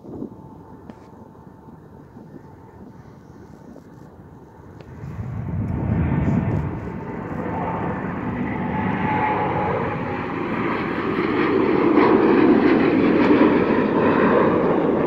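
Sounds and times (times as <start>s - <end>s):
jet engine roar: 0.0s - 15.0s.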